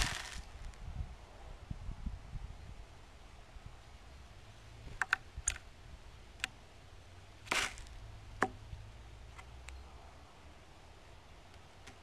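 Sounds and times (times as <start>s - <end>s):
wings rustling flutter: 0.0s - 0.8s.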